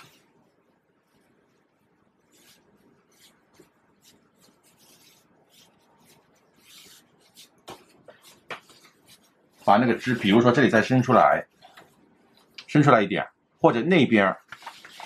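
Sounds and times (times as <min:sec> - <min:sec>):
brush scratching on paper: 0:02.3 - 0:10.6.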